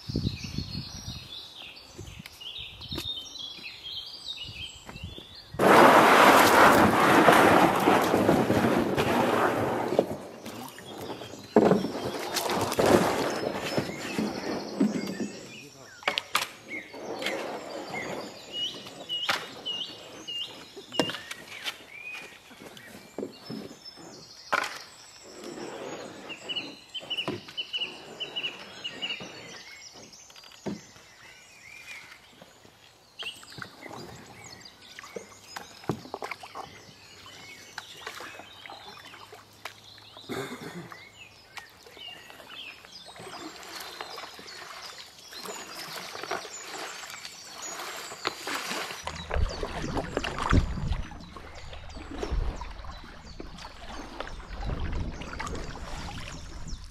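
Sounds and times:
wind on microphone: 0:00.0 - 0:01.4, 0:49.0 - 0:56.9
paddles dipping in water: 0:04.6 - 0:56.9
water drips and splashes: 0:06.4 - 0:16.5, 0:32.1 - 0:40.3, 0:41.5 - 0:56.9
bird chirping: 0:13.2 - 0:56.9.

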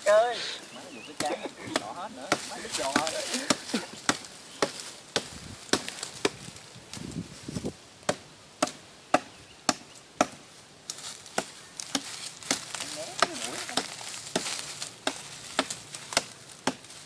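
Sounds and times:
hand tool chopping into soil: 0:01.2 - 0:06.5, 0:11.3 - 0:17.0.

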